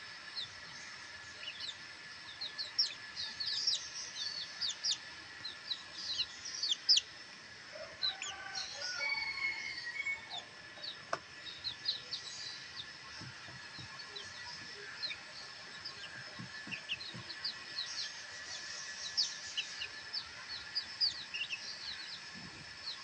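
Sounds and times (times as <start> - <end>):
chicks peeping: 0.0 - 23.0.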